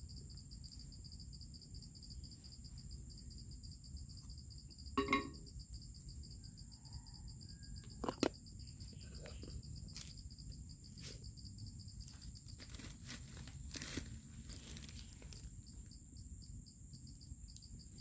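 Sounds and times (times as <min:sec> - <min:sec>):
insects chirring: 0:00.0 - 0:18.0
wooden cup knock: 0:05.0 - 0:05.4.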